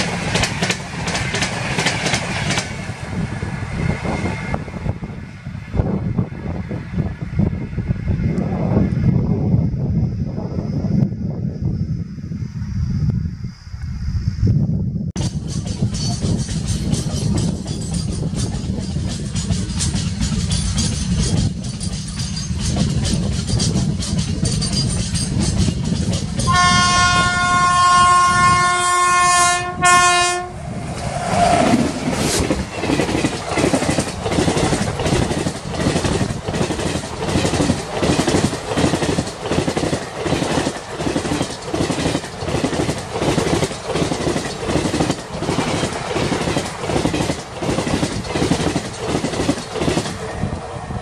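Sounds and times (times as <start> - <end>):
train wheels clacking over rail joints: 0.0 - 3.0, 15.2 - 28.7, 31.0 - 50.6
locomotive horn blast: 26.5 - 30.6.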